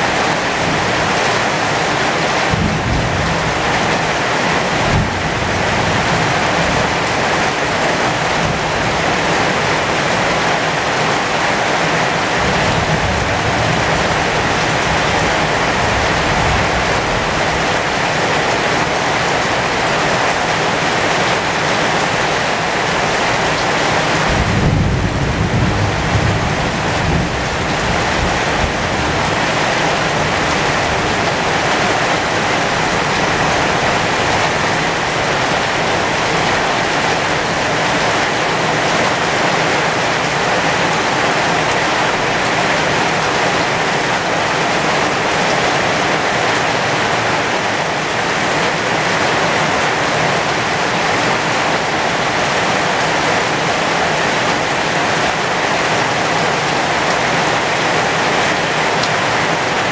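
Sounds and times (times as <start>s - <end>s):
heavy rain on leaves: 0.0s - 59.9s
low rumble of thunder: 2.5s - 3.8s, 24.2s - 29.4s.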